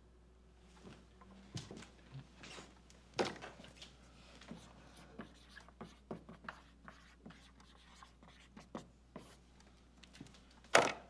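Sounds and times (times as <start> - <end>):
marker squeaking on whiteboard: 4.9 - 9.4.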